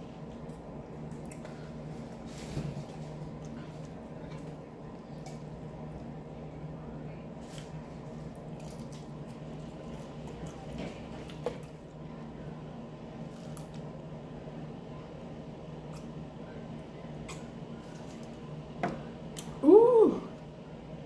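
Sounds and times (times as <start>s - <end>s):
steady low hum: 0.0s - 21.0s
wet squishy chewing: 7.4s - 11.8s.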